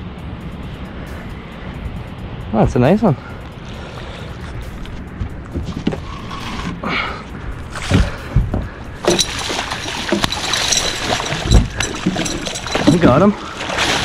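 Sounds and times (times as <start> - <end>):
heavy thump: 7.8 - 9.2
fish splashing at surface: 9.0 - 14.0.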